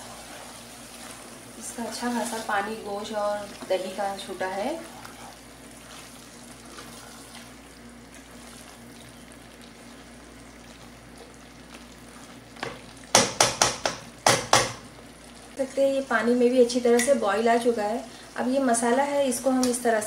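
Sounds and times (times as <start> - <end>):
meat sizzling and bubbling in pot: 0.0 - 20.0
spoon knocking against pot: 13.1 - 14.8.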